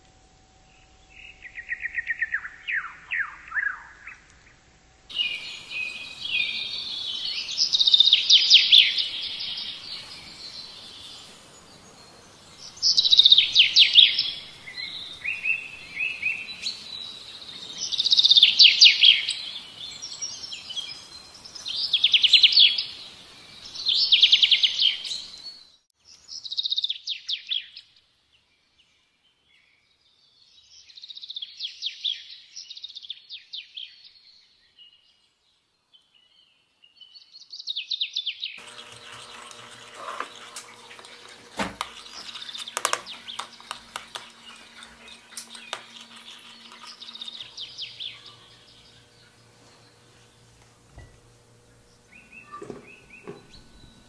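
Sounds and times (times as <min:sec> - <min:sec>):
songbird trilling: 0:05.1 - 0:23.0, 0:40.4 - 0:50.4, 0:51.7 - 0:54.0.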